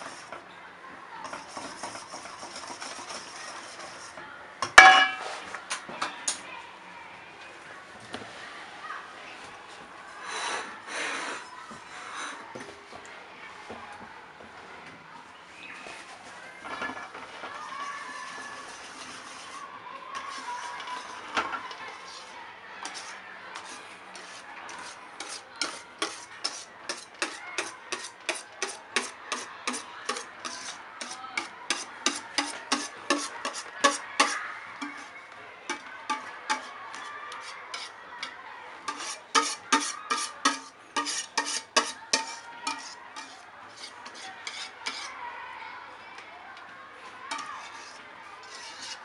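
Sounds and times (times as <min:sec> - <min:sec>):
whisk scraping a metal saucepan: 0:00.0 - 0:00.4, 0:01.2 - 0:04.2, 0:16.7 - 0:38.3, 0:38.9 - 0:45.2, 0:47.3 - 0:49.0.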